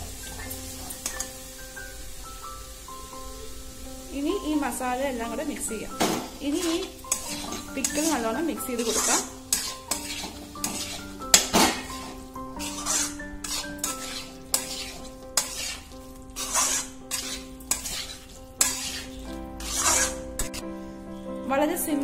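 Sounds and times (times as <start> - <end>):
metal spoon scraping metal pan: 0.4 - 1.3, 5.9 - 20.7.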